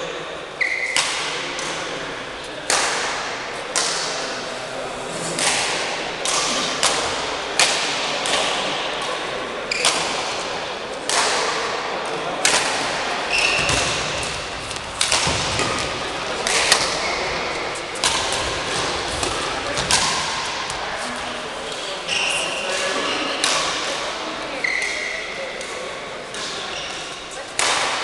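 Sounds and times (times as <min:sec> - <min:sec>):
shoe squeak: 0:00.6 - 0:01.0, 0:13.3 - 0:13.8, 0:21.8 - 0:23.4, 0:24.6 - 0:25.3, 0:26.7 - 0:27.0
rackets striking shuttlecock: 0:00.7 - 0:01.8, 0:05.4 - 0:20.8, 0:27.6 - 0:28.0.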